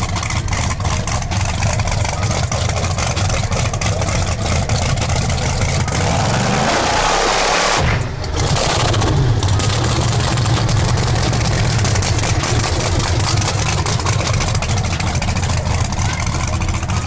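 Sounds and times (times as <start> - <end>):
race engine idling rumble: 0.0 - 17.0.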